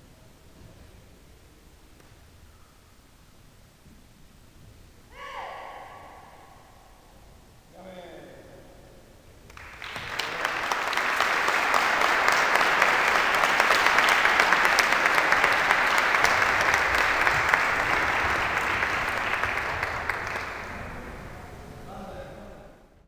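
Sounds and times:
audience applauding: 0:09.5 - 0:21.9.

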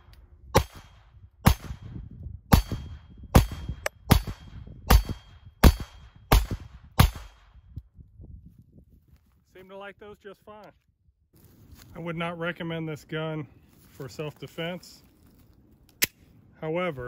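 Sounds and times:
pistol shots: 0:00.6 - 0:01.9, 0:02.5 - 0:07.5.

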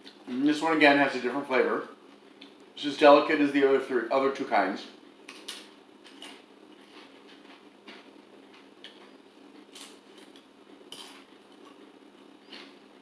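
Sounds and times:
tortilla chip crunching: 0:09.6 - 0:12.8.

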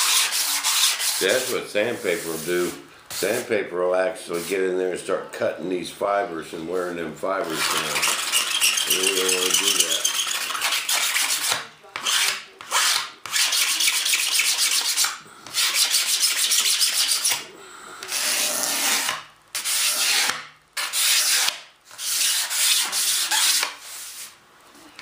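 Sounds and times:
razor blade scraping resin: 0:07.4 - 0:23.8.

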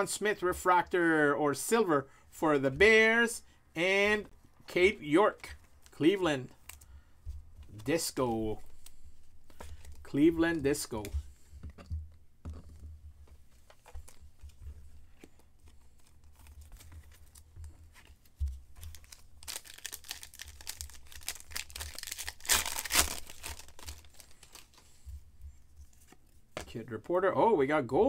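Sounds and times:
wrapper tearing and crinkling: 0:18.8 - 0:24.8.

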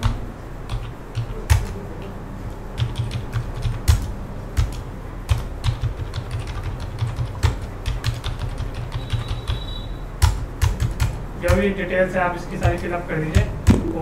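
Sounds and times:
keyboard typing: 0:00.0 - 0:11.8, 0:12.5 - 0:14.0.

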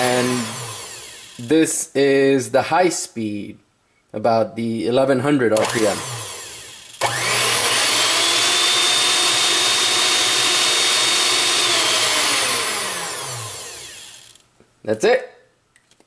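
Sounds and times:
electric hand mixer whining: 0:00.0 - 0:01.5, 0:05.6 - 0:14.4.

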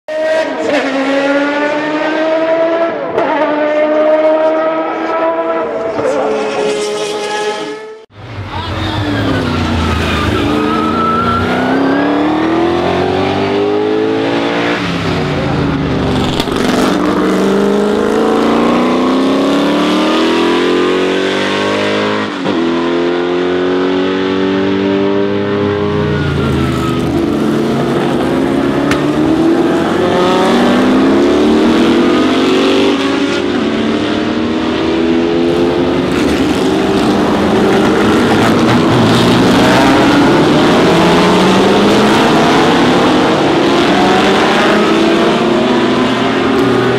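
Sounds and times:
race car engines passing: 0:00.1 - 0:46.9.

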